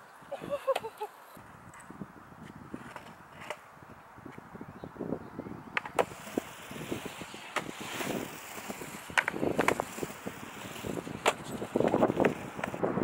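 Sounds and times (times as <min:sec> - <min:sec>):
skateboard wheels rumbling on concrete: 0:00.7 - 0:13.0
board and trucks clacking: 0:07.4 - 0:10.2.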